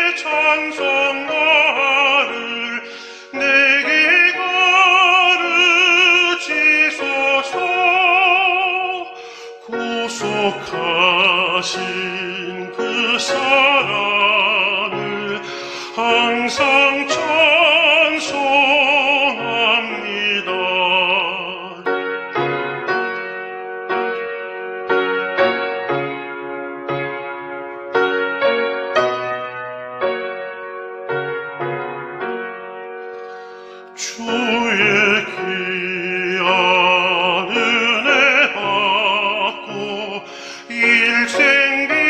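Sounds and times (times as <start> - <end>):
tenor singing a hymn: 0.0 - 21.9, 33.8 - 42.0
piano accompaniment: 0.0 - 42.0.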